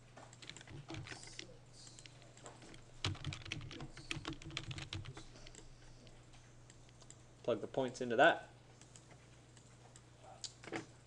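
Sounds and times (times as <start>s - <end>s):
computer keyboard typing: 0.3s - 5.7s, 6.7s - 7.2s.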